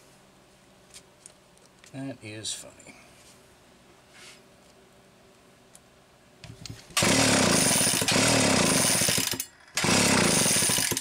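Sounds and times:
chainsaw engine turning over: 0:07.0 - 0:11.0.

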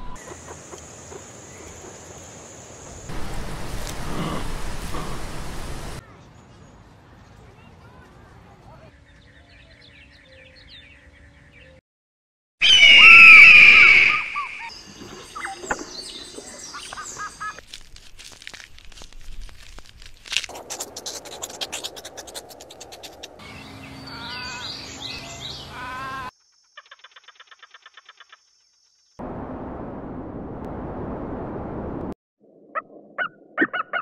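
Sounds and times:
eagle whistling scream: 0:12.6 - 0:14.7
wavering calls: 0:23.4 - 0:26.3
chirping calls: 0:23.4 - 0:27.6.

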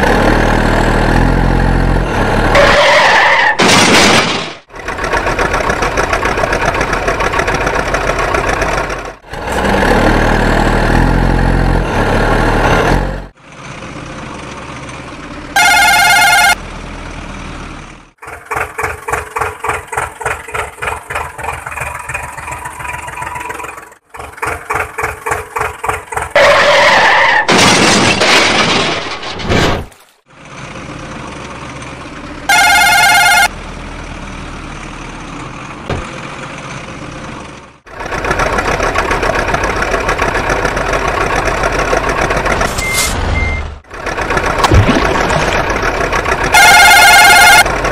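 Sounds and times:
toy truck engine chugging: 0:04.7 - 0:09.2, 0:18.2 - 0:26.4, 0:37.8 - 0:42.7, 0:43.9 - 0:44.6, 0:45.5 - 0:47.9
high horn tone: 0:15.6 - 0:16.6, 0:32.5 - 0:33.5, 0:46.5 - 0:47.7.

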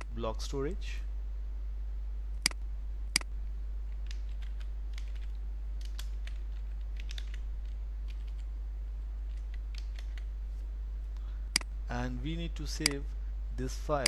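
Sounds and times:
steady low hum: 0:00.0 - 0:14.0
sharp clicks: 0:02.4 - 0:03.3, 0:11.5 - 0:11.7
keyboard typing: 0:04.0 - 0:08.5, 0:09.3 - 0:10.3.

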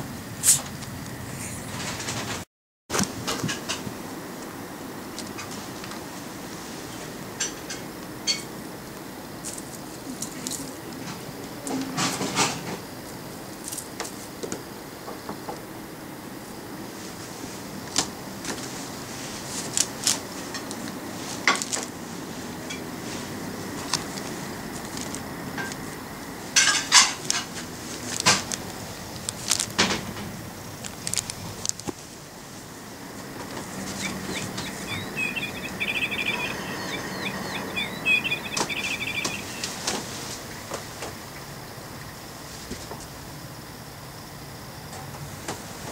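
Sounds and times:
nylon tunnel clicking and rustling: 0:27.0 - 0:32.6
bird-like chirping and trills: 0:32.8 - 0:40.6.

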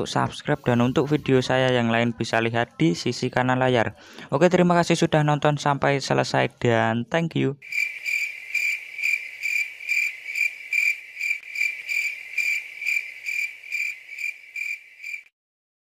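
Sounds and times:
insect trilling: 0:07.6 - 0:15.3.

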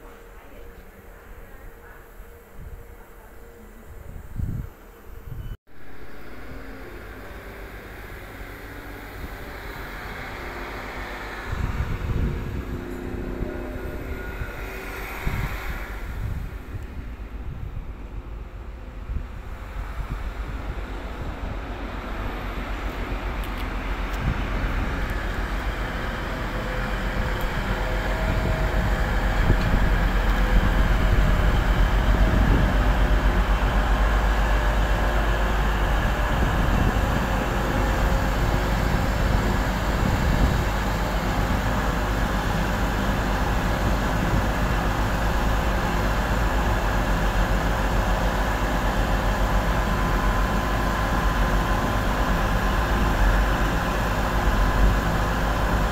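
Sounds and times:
diesel train engines: 0:00.0 - 0:55.9
wheels rumbling on rail: 0:00.0 - 0:55.9.

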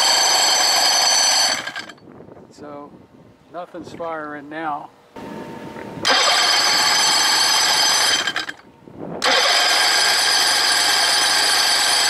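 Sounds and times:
electric starter cranking engine: 0:00.0 - 0:02.0, 0:06.0 - 0:12.0.

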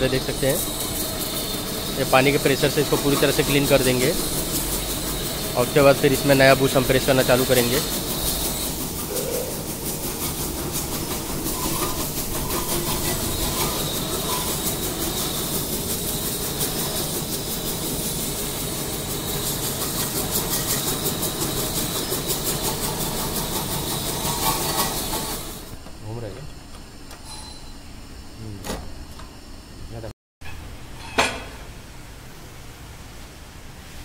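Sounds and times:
pressure washer spraying: 0:00.0 - 0:25.8
pump pulsing: 0:00.0 - 0:25.8.

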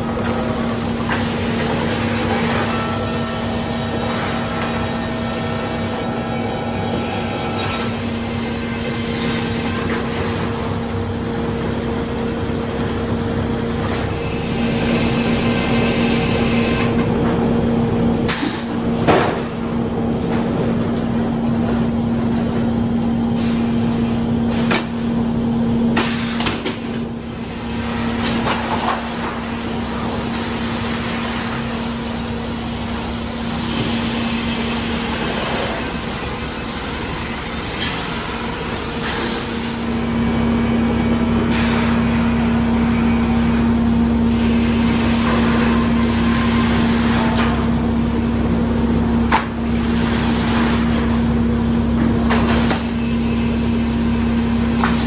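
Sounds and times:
motors humming: 0:27.8 - 0:45.8.

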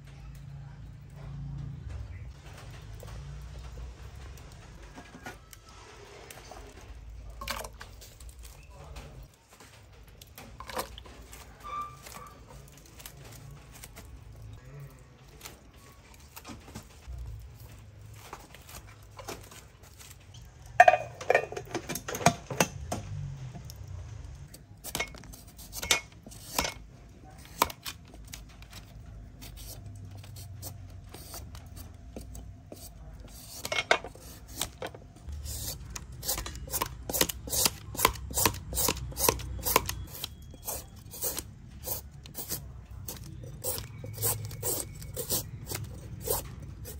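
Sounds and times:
peeler scraping papaya: 0:24.5 - 0:28.4, 0:29.3 - 0:46.9.

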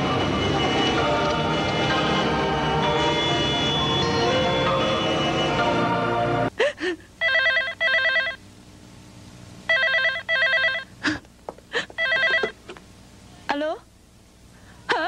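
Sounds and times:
dramatic background music: 0:00.0 - 0:06.5.

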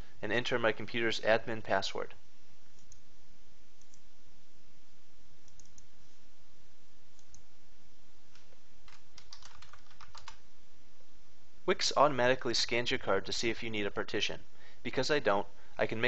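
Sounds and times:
steady low hiss: 0:00.0 - 0:16.0
computer mouse clicks: 0:02.7 - 0:03.0, 0:03.8 - 0:04.0, 0:05.4 - 0:05.9, 0:07.2 - 0:07.5.

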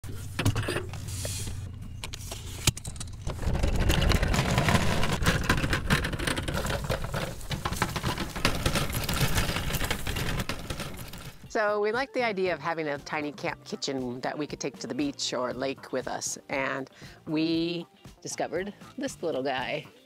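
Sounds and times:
wheels rumbling over asphalt: 0:00.1 - 0:11.5.

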